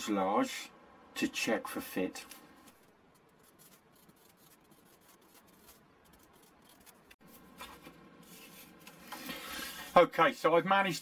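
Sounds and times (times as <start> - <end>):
marker scratching on paper: 3.1 - 7.3.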